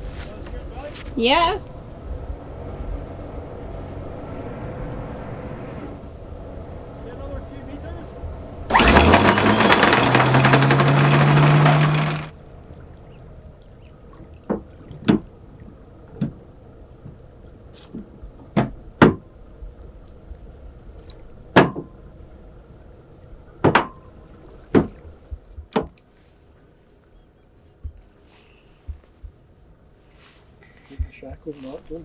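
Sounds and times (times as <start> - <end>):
loud running noise with hum: 5.8 - 17.6
anchor chain clanking: 8.7 - 12.4.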